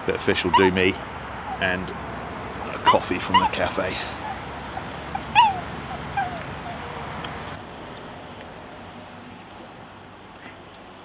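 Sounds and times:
small dog whining: 0:00.5 - 0:07.0.

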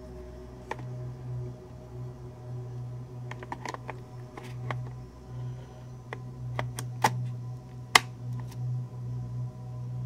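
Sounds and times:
battery clicks and scrapes: 0:00.6 - 0:00.9, 0:03.3 - 0:05.0, 0:06.0 - 0:08.6
battery seating click: 0:00.6 - 0:00.9, 0:03.3 - 0:05.0, 0:06.1 - 0:08.6.

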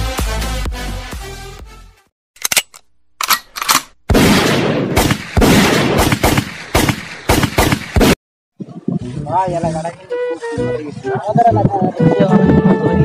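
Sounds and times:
automatic gunfire: 0:03.7 - 0:08.2.

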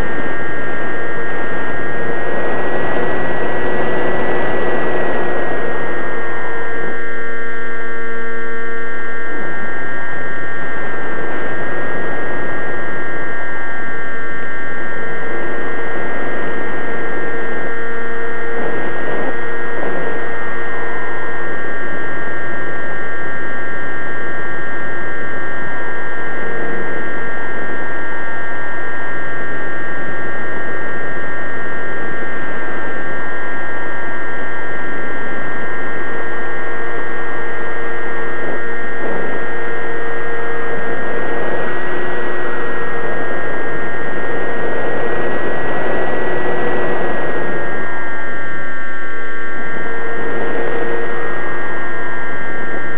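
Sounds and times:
model airplane motor whining: 0:00.0 - 0:23.4, 0:35.6 - 0:52.9.

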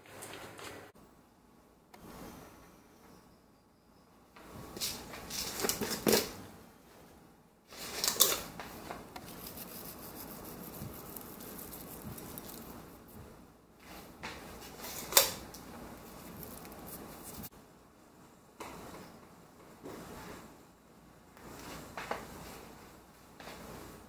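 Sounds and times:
faint steady hiss: 0:00.0 - 0:24.0
kitchen clicks and rustles: 0:04.8 - 0:06.4, 0:07.7 - 0:13.2, 0:13.8 - 0:17.5.

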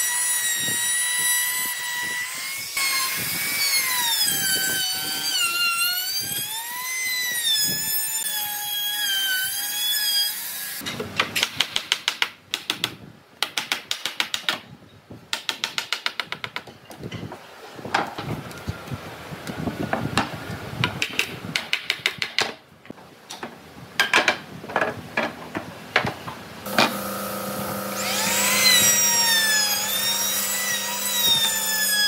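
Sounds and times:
router cutting wood: 0:26.7 - 0:32.0.

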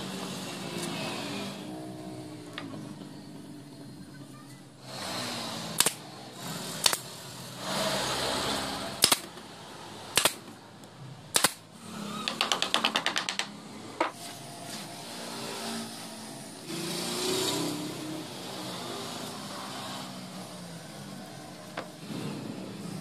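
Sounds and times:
nail gun firing into plywood: 0:05.8 - 0:06.0, 0:06.8 - 0:07.1, 0:09.0 - 0:09.3, 0:10.1 - 0:10.5, 0:11.3 - 0:11.6.

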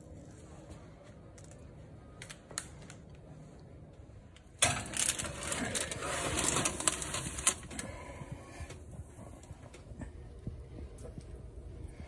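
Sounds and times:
paper rustling: 0:04.6 - 0:07.8.

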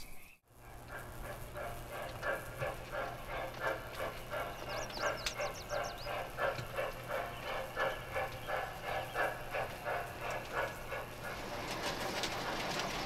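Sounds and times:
steam locomotive chuffing: 0:00.5 - 0:13.0
bird twitter: 0:04.4 - 0:06.3.

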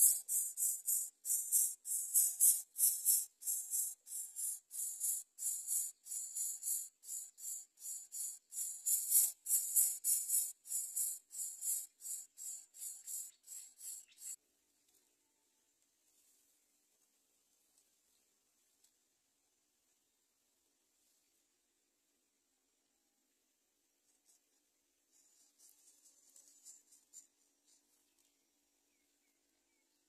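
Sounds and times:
nestlings raspy hissing calls: 0:00.0 - 0:14.4.

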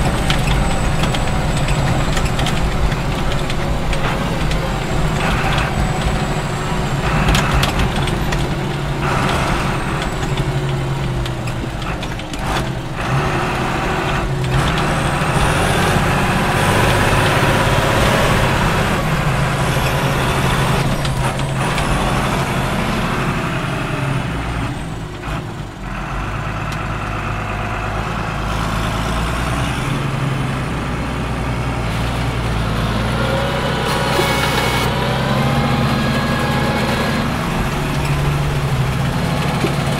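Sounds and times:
knocks and rattles: 0:00.0 - 0:22.8, 0:35.8 - 0:39.9
tractor engine running under load: 0:00.0 - 0:39.9.

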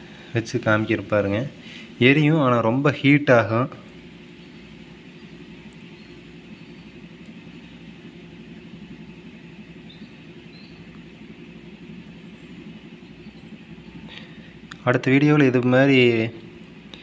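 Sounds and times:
low background hum: 0:00.0 - 0:17.0
faint high chirps: 0:04.1 - 0:14.6.

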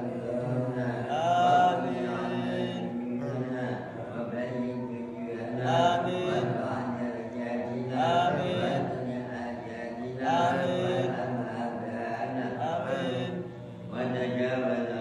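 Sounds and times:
man chanting prayer into microphone: 0:00.0 - 0:15.0.

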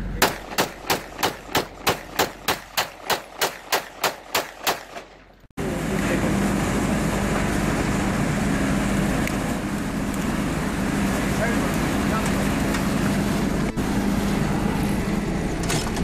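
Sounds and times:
low hum: 0:00.0 - 0:16.0
pistol shots: 0:00.2 - 0:05.2.

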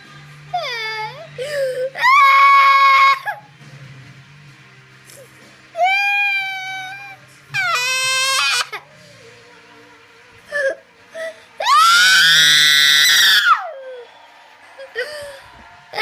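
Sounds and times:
girl crying and wailing: 0:00.6 - 0:03.4, 0:05.8 - 0:08.8, 0:10.5 - 0:13.6.

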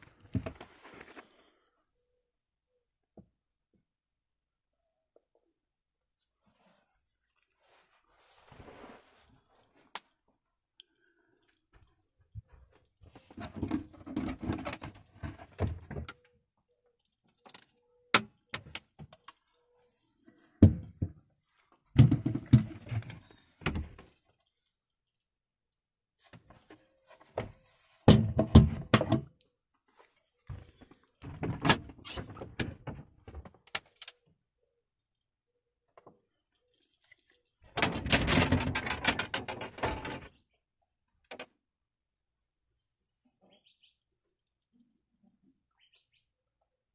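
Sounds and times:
wooden cabinet doors opening and shutting: 0:28.1 - 0:29.3, 0:31.2 - 0:33.7, 0:37.7 - 0:40.3
knocks clicks and rattles: 0:37.7 - 0:40.3.

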